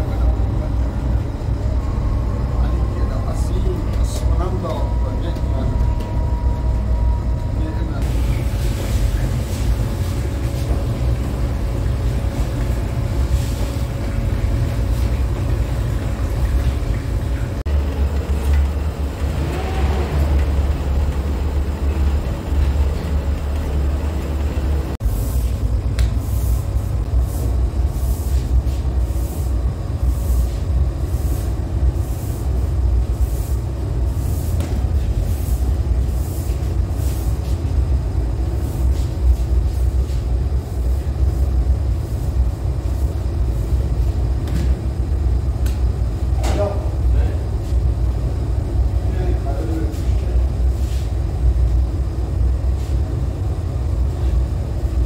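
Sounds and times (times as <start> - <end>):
dough mixer motor humming: 5.8 - 25.0.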